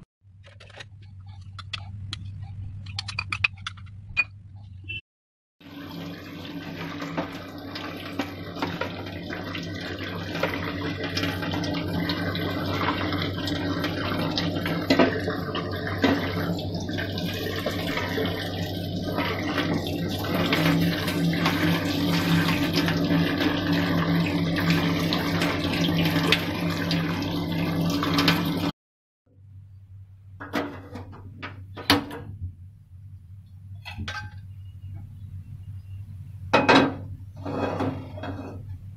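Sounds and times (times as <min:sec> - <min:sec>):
tap water running into colander: 0:05.6 - 0:28.7.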